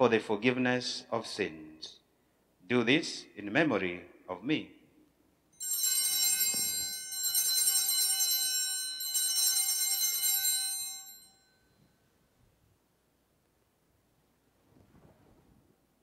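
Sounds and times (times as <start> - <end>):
altar bells jangling: 5.6 - 11.8.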